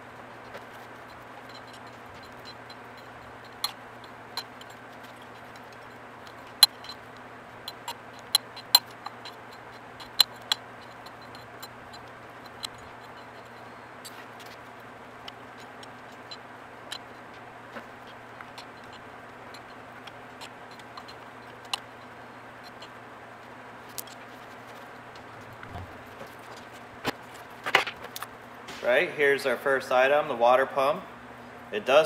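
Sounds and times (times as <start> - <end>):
low hum: 24.1 - 27.6.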